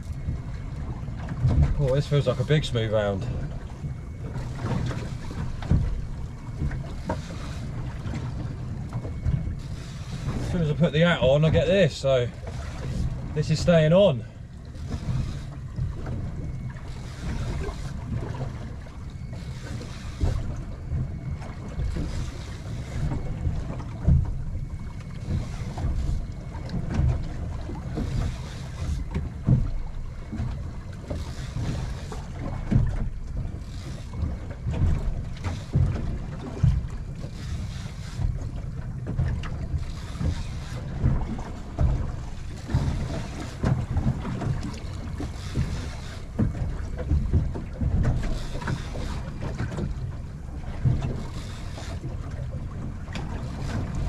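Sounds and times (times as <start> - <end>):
water slapping against boat hull: 0.0 - 54.0
wind buffeting microphone: 0.0 - 54.0.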